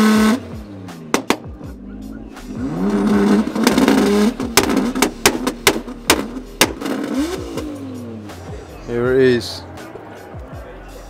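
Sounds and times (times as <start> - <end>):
car engine revving: 0.0 - 10.3
exhaust pops and cracks: 1.1 - 1.6, 2.8 - 7.7.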